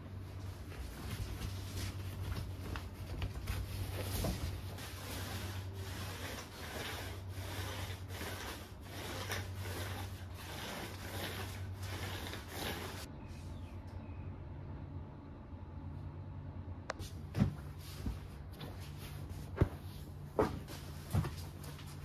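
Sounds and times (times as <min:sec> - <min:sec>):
steady low hum: 0:00.0 - 0:22.0
rubbing strokes on a surface: 0:00.6 - 0:13.1.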